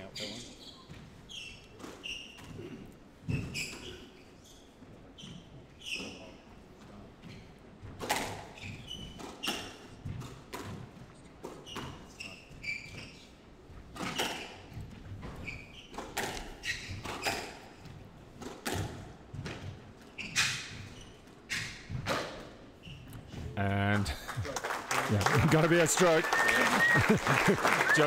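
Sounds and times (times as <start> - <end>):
shoes squeaking on wooden floor: 0.0 - 23.7
squash ball cracking off rackets: 15.9 - 17.6.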